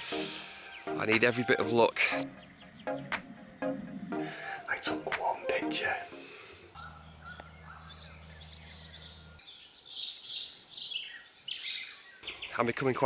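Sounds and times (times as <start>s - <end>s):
songbirds singing: 0.0s - 13.0s
low hum: 6.0s - 9.4s.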